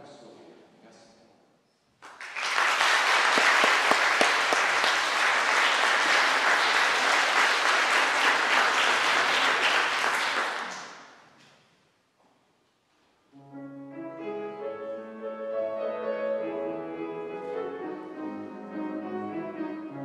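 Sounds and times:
audience applauding: 2.0 - 11.3.

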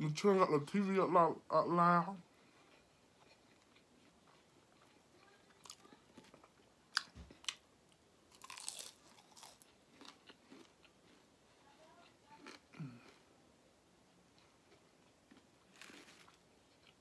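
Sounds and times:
soft chewing: 2.2 - 13.5, 14.1 - 17.0
crunching fried food: 2.3 - 7.7, 8.3 - 13.3, 14.3 - 17.0.

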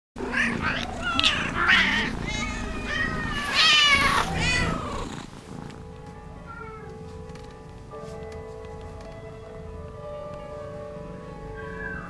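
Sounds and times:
cats meowing: 0.2 - 5.3.

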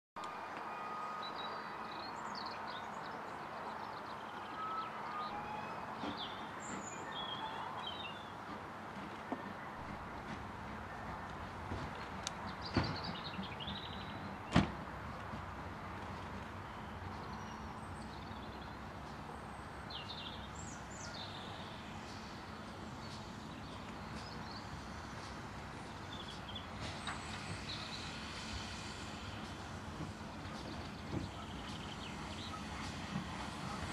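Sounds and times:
birdsong: 0.7 - 8.4, 11.9 - 14.7, 16.6 - 33.9
steam tank engine approaching: 15.3 - 33.9.

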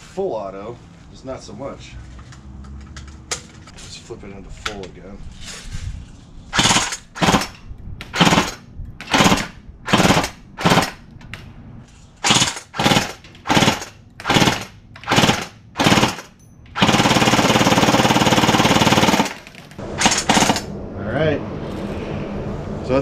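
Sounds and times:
airsoft gun rattling bursts: 6.5 - 11.0, 12.2 - 20.7.

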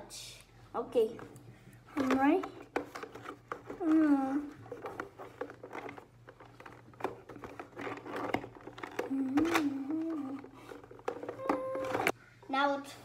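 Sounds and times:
packaging clicks and rustling: 2.0 - 12.2
person humming: 9.0 - 10.6, 11.2 - 12.1.

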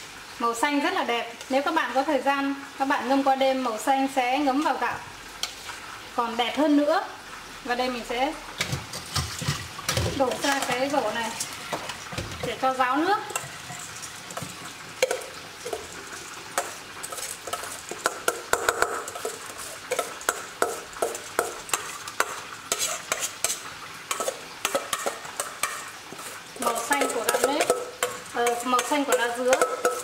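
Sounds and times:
wet rice pattering: 8.6 - 30.0.

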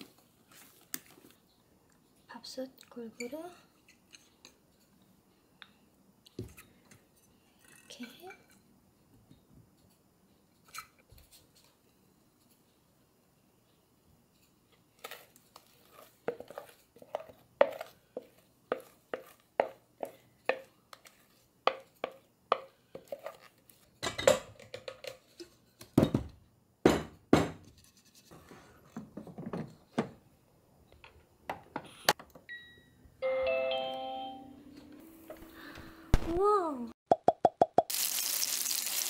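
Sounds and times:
spatula scraping and tapping bowl: 15.0 - 23.8.

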